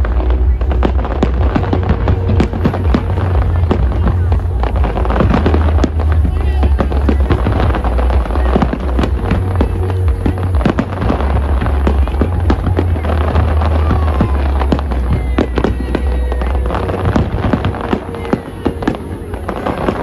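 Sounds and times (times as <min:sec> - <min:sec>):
fireworks bangs and crackles: 0:00.0 - 0:20.0
music with heavy bass: 0:00.0 - 0:20.0.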